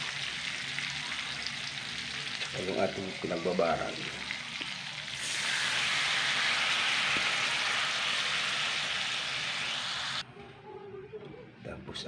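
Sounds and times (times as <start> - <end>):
marinade sizzling in a hot pan: 0.0 - 10.2.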